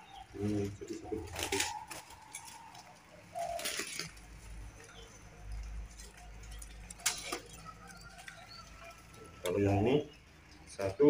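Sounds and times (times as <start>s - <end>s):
doves cooing: 0.0s - 11.0s.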